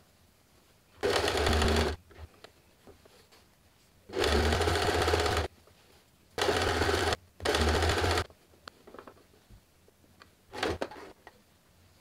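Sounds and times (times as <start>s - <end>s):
sewing machine stitching: 1.0s - 2.0s, 4.1s - 5.5s, 6.4s - 8.3s.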